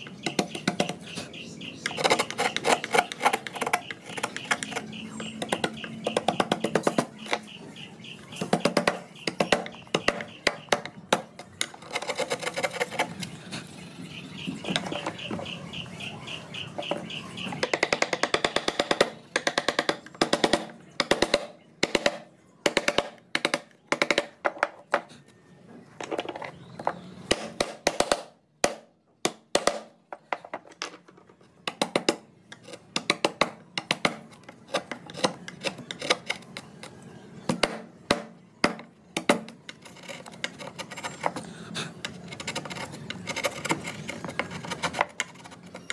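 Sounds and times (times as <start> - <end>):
chisel striking hardwood: 8.3 - 11.4, 16.8 - 24.7, 37.5 - 41.0.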